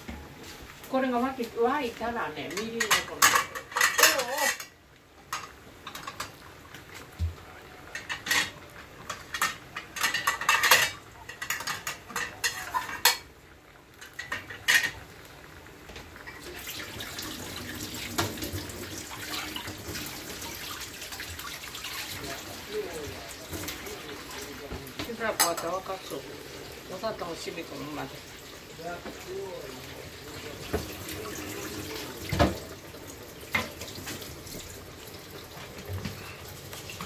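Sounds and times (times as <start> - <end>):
metal cookware clinking: 2.3 - 6.4, 7.9 - 13.3, 14.0 - 15.0, 21.9 - 26.2
steady watery hiss: 13.9 - 37.0.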